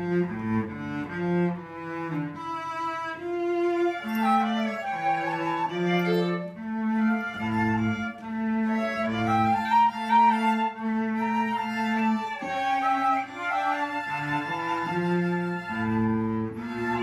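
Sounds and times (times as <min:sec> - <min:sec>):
violin flute and cello hymn: 0:00.0 - 0:17.0.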